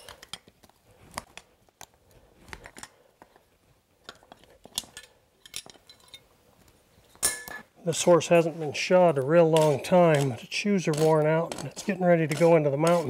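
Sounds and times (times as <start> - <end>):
metal clicks and crunches on hoof: 9.2 - 13.0.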